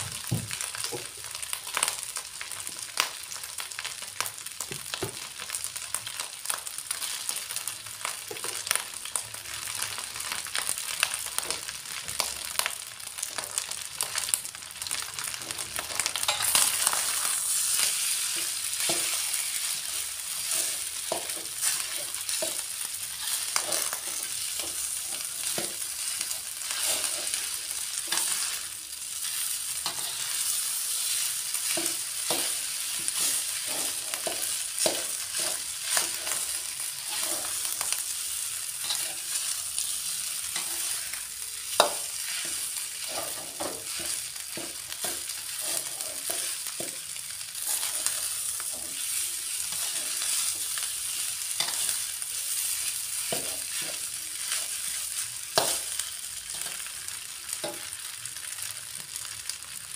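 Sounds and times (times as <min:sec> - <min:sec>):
rice sizzling in a wok: 0:00.0 - 0:59.9
metal spatula scraping a pan: 0:16.1 - 0:37.8, 0:38.7 - 0:47.0, 0:47.6 - 0:52.1.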